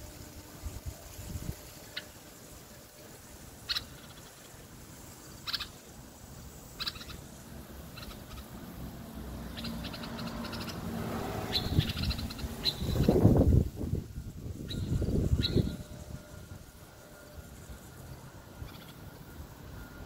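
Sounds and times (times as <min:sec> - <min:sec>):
bird calling in bright phrases: 0:01.7 - 0:13.4, 0:14.5 - 0:16.4, 0:18.2 - 0:19.4.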